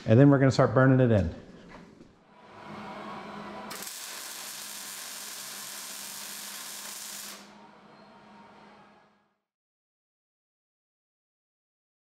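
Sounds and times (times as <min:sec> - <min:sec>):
loud steady hiss: 0:03.7 - 0:07.6.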